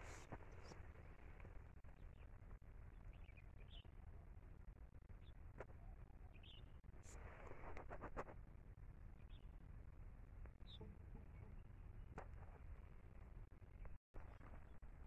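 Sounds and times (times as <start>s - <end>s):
faint bird chirps: 0.0s - 4.4s, 5.2s - 7.8s, 9.1s - 9.6s, 10.5s - 12.6s.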